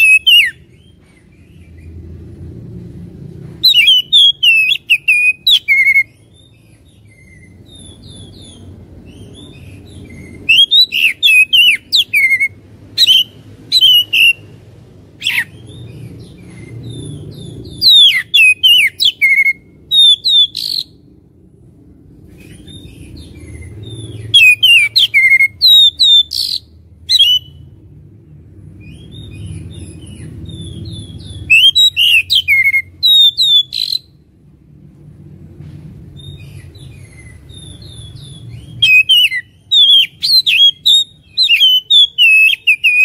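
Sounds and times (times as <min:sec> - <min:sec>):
bird singing whistled runs: 0:30.5 - 0:34.1, 0:37.1 - 0:43.0.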